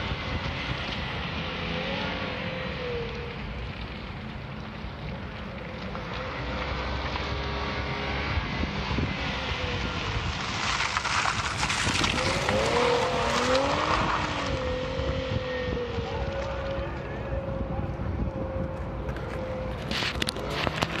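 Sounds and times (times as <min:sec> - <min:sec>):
car engine revving: 0:05.9 - 0:17.7
tyre noise: 0:08.9 - 0:21.0.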